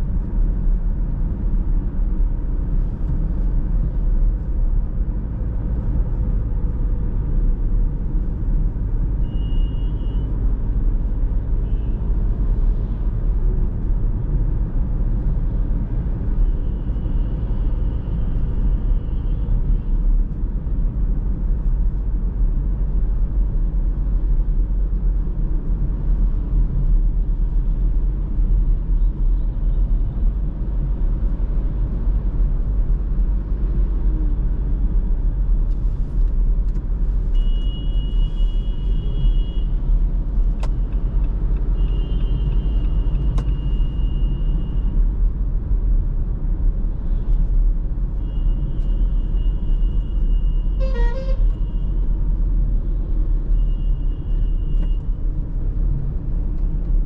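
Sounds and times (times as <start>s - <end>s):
car driving on road rumble: 0.0s - 57.0s
vehicle horns: 37.3s - 39.7s, 41.7s - 44.8s, 48.2s - 51.9s.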